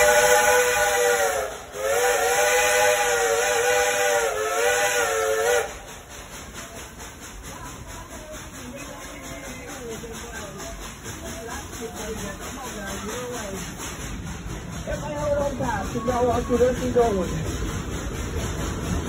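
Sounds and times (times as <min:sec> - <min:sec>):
steam locomotive chime whistle: 0:00.0 - 0:05.8
train running noise: 0:00.0 - 0:19.0.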